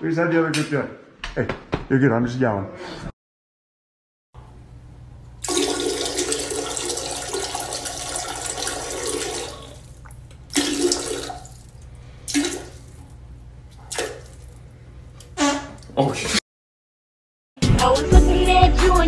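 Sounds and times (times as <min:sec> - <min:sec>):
dog urinating into toilet water: 0:05.4 - 0:13.1, 0:13.8 - 0:14.6.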